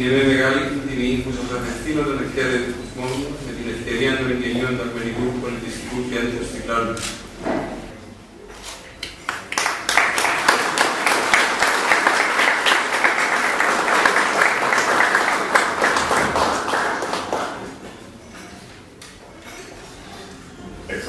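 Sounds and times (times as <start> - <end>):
crowd applauding: 9.2 - 18.0.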